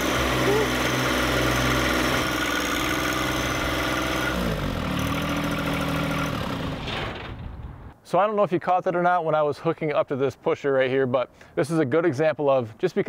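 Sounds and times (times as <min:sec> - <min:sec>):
tractor diesel engine running: 0:00.0 - 0:06.8.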